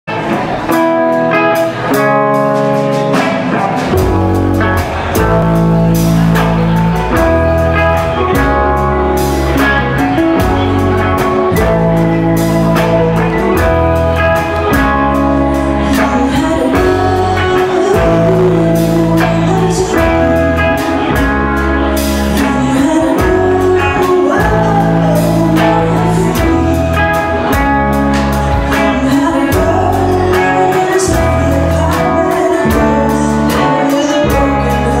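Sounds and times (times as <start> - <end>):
live rock band playing: 0.1 - 35.0
woman singing: 9.5 - 27.7, 28.5 - 35.0.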